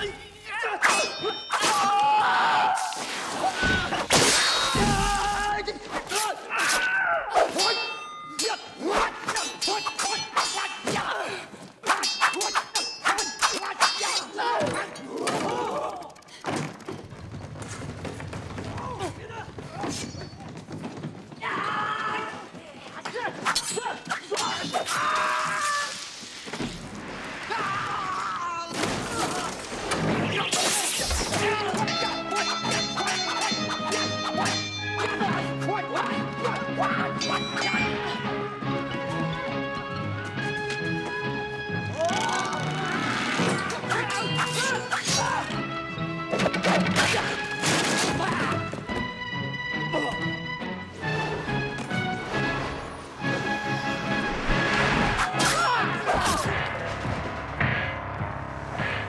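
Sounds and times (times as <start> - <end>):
fighters shouting and grunting: 0.0 - 16.2, 21.4 - 26.0, 27.4 - 39.3, 41.0 - 45.8, 46.8 - 49.0, 55.0 - 56.8
sword blades clashing: 0.8 - 2.2, 6.0 - 11.2, 11.8 - 15.2, 23.5 - 25.2, 30.4 - 35.5, 37.1 - 38.1, 43.8 - 45.5.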